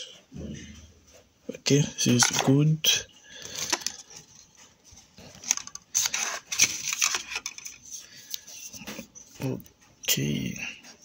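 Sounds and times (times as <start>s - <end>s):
cardboard and plastic rustling: 2.0s - 2.6s, 3.4s - 9.6s.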